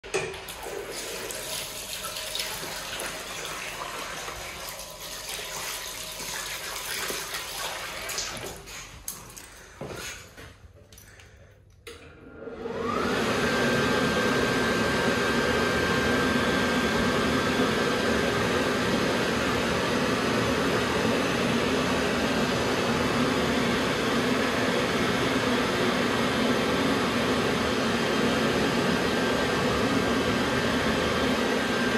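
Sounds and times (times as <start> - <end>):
tap water running into basin: 0.0 - 10.1
electric hand dryer: 0.0 - 10.2, 11.9 - 31.9.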